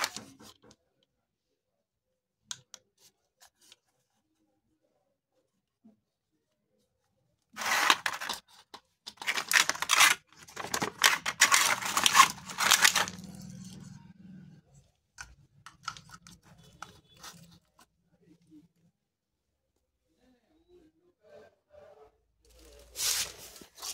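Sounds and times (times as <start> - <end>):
plastic parts clicking: 7.6 - 13.3
plastic packaging crinkling and tearing: 7.6 - 13.6.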